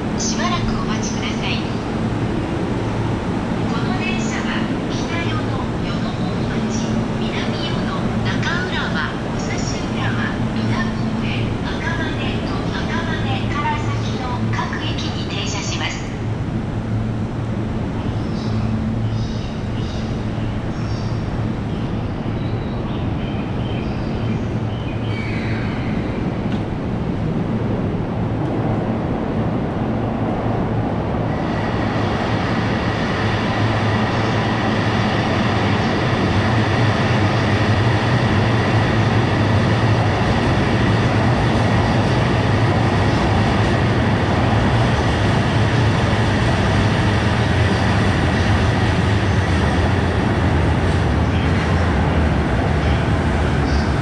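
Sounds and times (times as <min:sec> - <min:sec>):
electric train rumbling: 0:00.0 - 0:54.0.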